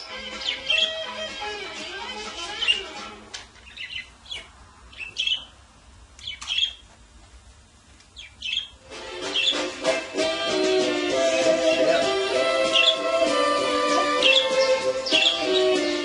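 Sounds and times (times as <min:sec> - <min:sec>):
budgerigars chirping: 0:00.0 - 0:03.0, 0:03.6 - 0:05.5, 0:06.2 - 0:06.8, 0:08.2 - 0:10.0, 0:10.7 - 0:16.0.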